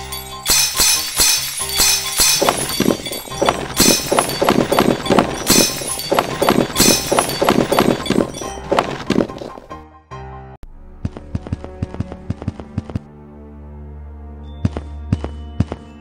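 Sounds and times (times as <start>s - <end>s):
glass-like smashing bursts: 0.0s - 9.3s
crashes and clattering debris: 0.5s - 9.7s.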